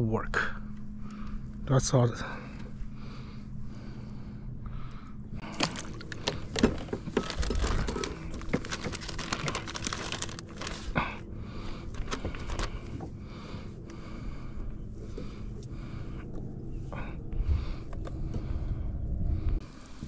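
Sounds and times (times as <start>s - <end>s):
clicks and crinkling rustles: 5.4s - 13.2s.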